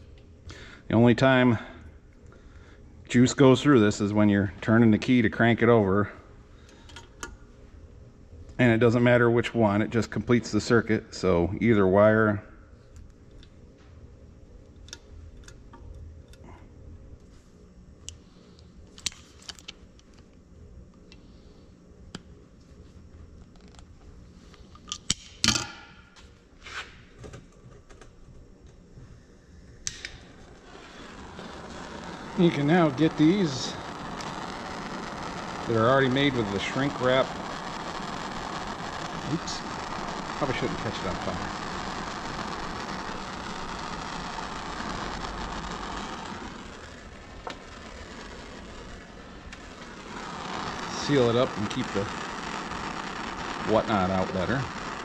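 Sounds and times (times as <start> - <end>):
gas torch flame hissing: 29.8 - 55.0.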